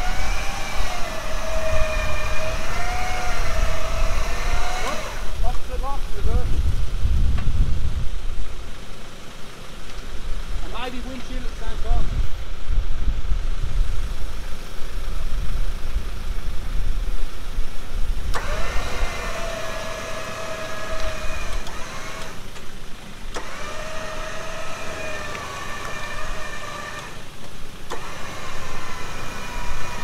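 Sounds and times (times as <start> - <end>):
electric winch whining: 0.0 - 5.8, 18.2 - 30.0
vehicle engine running: 0.0 - 30.0
winch click: 23.3 - 23.8.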